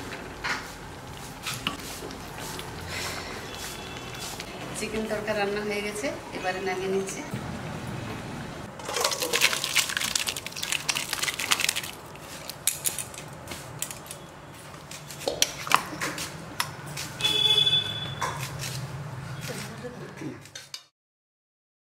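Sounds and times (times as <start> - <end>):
utensils clinking: 8.8 - 14.3.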